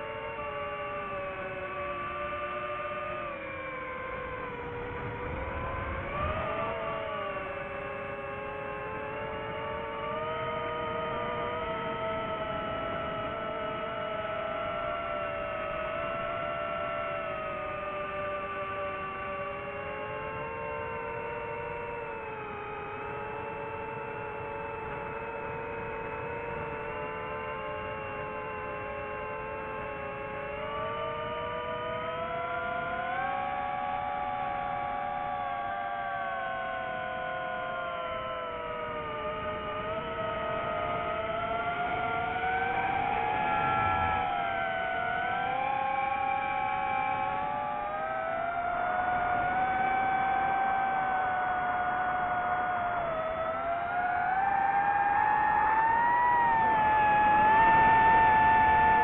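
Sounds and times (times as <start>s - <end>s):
quadcopter motors whining: 0.0s - 59.0s
drone motors whining: 36.2s - 59.0s.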